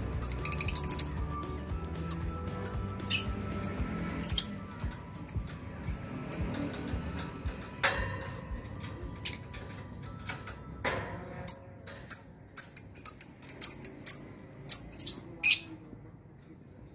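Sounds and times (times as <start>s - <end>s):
bird chirping shrilly: 0.2s - 1.2s, 2.1s - 6.5s, 12.1s - 15.6s.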